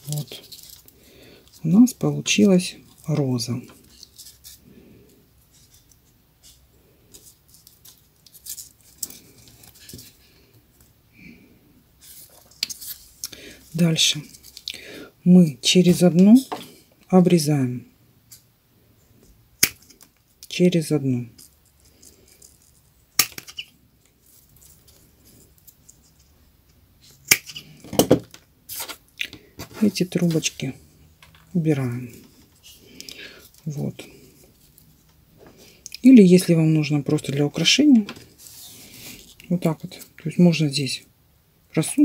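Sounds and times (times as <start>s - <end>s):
paper rustling: 0.0s - 1.8s, 28.7s - 30.6s
paper rustling and crackling: 0.0s - 1.8s.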